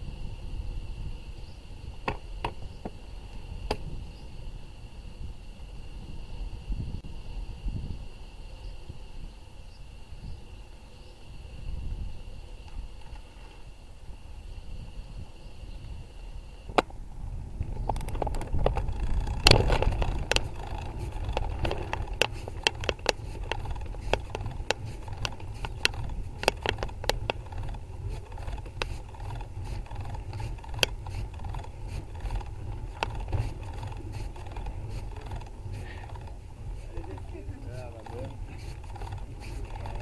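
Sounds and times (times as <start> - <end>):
low rumble of bicycle: 0.0 - 40.0
bike and camera mount rattling: 17.6 - 40.0.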